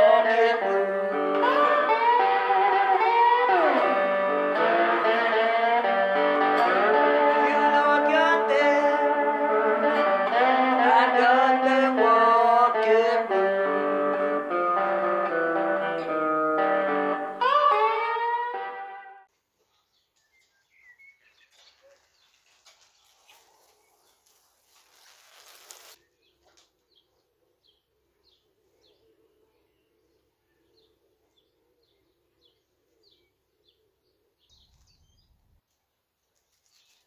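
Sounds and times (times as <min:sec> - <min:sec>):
small bird chirping: 0:19.6 - 0:37.0.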